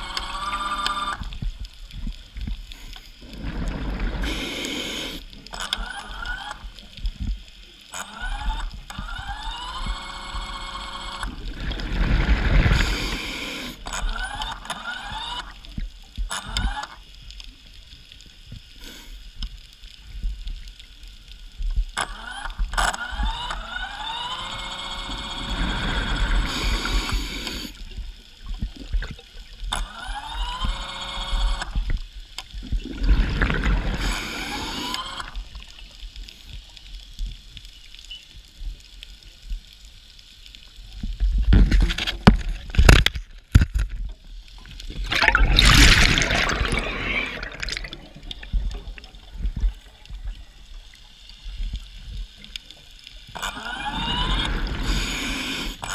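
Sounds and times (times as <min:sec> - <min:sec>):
diver breathing through regulator: 0:02.8 - 0:05.4, 0:12.0 - 0:14.0, 0:25.4 - 0:27.8, 0:32.9 - 0:35.4, 0:45.1 - 0:48.7, 0:53.7 - 0:55.9
exhaled bubbles gurgling: 0:03.2 - 0:05.2, 0:11.3 - 0:16.8, 0:25.1 - 0:30.8, 0:31.7 - 0:36.0, 0:44.6 - 0:51.0, 0:53.3 - 0:55.9.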